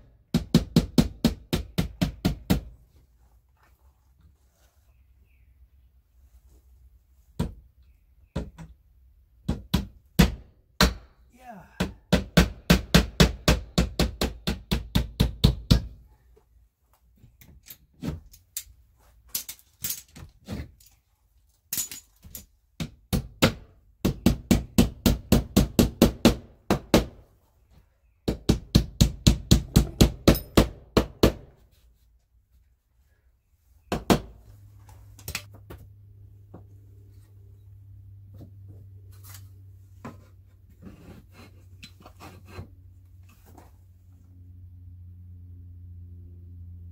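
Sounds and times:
hammer driving nails into siding: 0:00.3 - 0:02.7, 0:09.4 - 0:11.1, 0:11.8 - 0:16.0, 0:22.8 - 0:27.2, 0:28.2 - 0:31.5.

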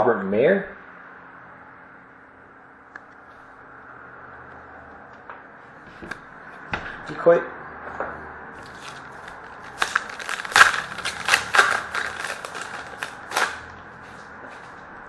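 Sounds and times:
foil wrapper tearing and crinkling: 0:08.6 - 0:13.7.

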